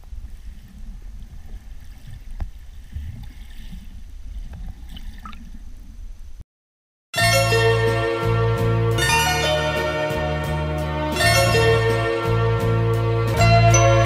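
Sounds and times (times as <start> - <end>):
muffled underwater rumble: 0.0 - 6.4
bubbles gurgling and clicking: 4.4 - 6.1
music: 7.2 - 14.0.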